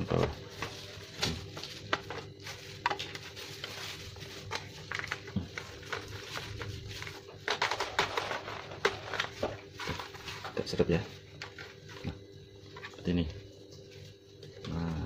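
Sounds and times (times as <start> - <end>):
plastic parts clicking and knocking: 7.5 - 9.5.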